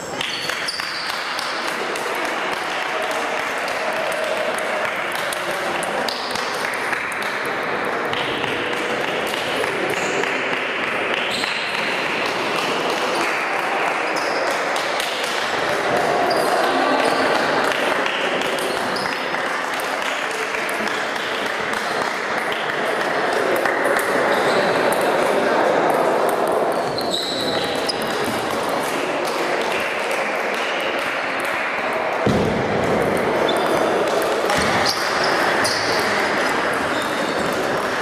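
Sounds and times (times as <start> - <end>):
hubbub of voices: 0.0 - 38.0.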